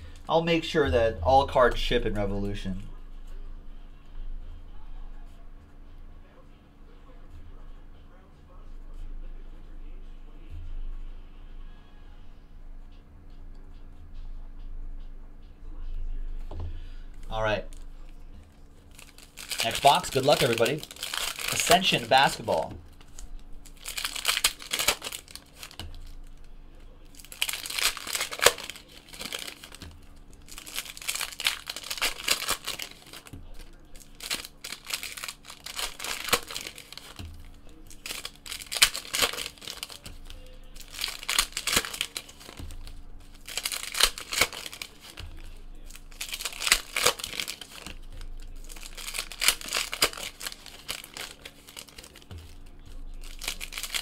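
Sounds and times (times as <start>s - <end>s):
foil wrappers crinkling and tearing: 17.2s - 54.0s.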